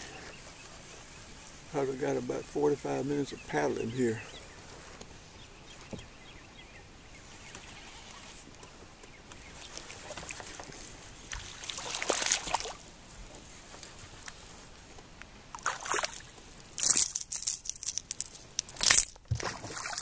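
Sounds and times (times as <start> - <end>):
water sloshing: 9.6 - 12.9, 15.5 - 20.0
fish splashing at the surface: 11.3 - 12.8, 15.6 - 17.0, 18.8 - 20.0.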